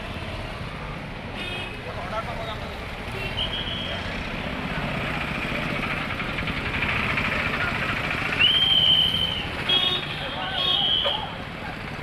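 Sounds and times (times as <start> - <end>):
road noise: 0.0 - 12.0
three-wheeler engine running: 4.0 - 12.0.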